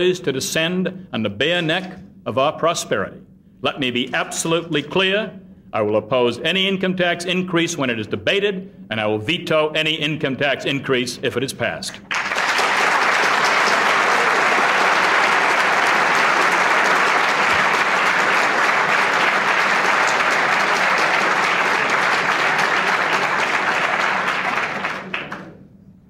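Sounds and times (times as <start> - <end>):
audience applauding: 12.0 - 25.6.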